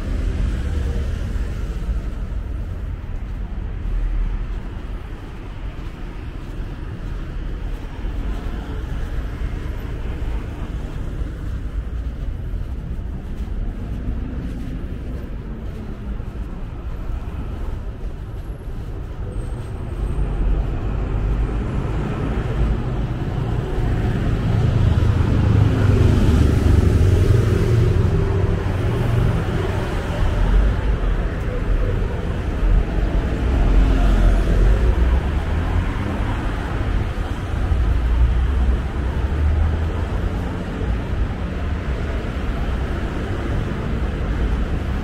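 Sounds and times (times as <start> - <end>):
road traffic passing: 0.0 - 45.0
passing vehicle engine: 20.0 - 45.0.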